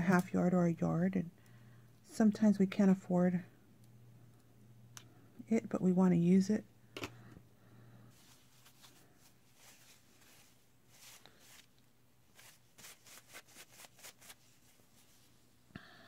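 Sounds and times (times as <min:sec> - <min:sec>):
fabric rustling: 0:08.1 - 0:15.5.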